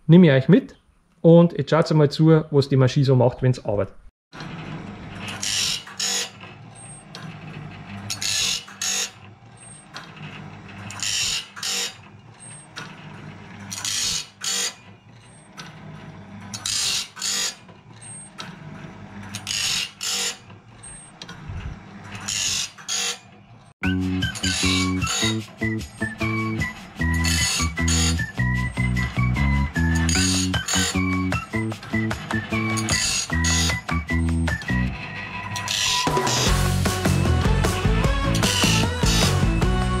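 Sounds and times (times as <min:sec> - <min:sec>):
grinding wheel grinding steel: 0:04.3 - 0:40.0
motor humming: 0:23.8 - 0:40.0.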